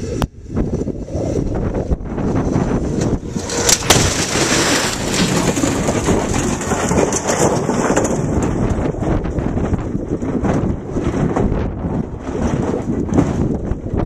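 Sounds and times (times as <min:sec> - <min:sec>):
wind noise on microphone: 0:00.0 - 0:14.0
gravel and debris scattering: 0:02.2 - 0:14.0
cables rattling: 0:02.9 - 0:11.5
vehicle crashing into barrier: 0:03.3 - 0:08.4.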